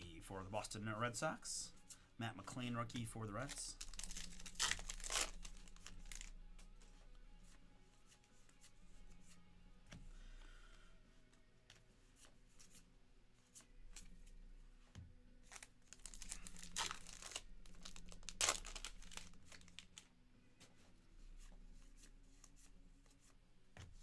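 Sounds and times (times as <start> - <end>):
wrapper tearing and crinkling: 3.5 - 6.3, 15.5 - 20.0.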